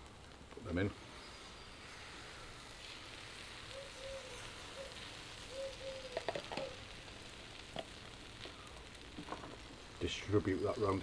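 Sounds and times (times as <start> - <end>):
eggs sizzling in frying pan: 0.0 - 11.0.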